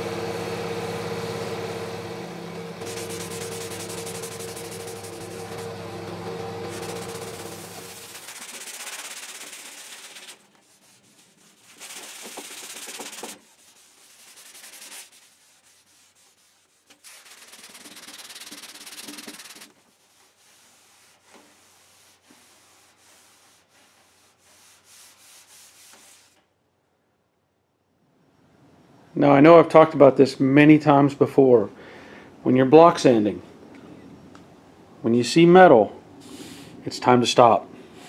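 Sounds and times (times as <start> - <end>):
sanding block scrubbing filler: 2.8 - 26.4.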